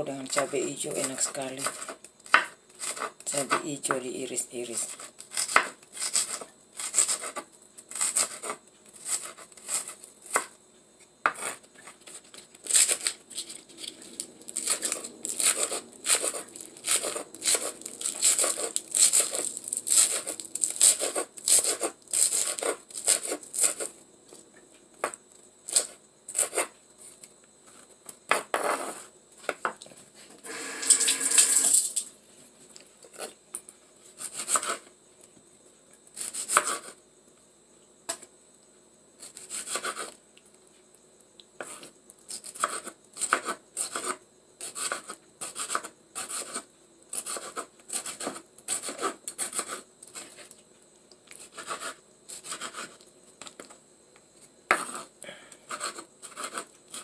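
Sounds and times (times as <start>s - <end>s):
knife rasping: 14.6s - 23.9s, 51.4s - 53.0s, 54.7s - 55.1s, 55.7s - 57.0s.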